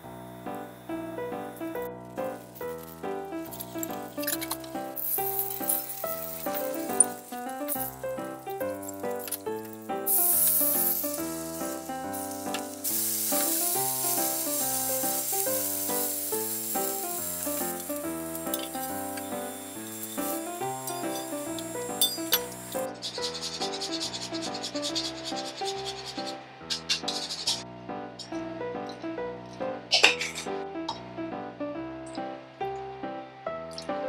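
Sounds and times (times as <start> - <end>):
background music with short notes: 0.0 - 23.0, 25.5 - 34.0
light background melody: 0.0 - 34.0
food sizzling in a frying pan: 4.2 - 22.9.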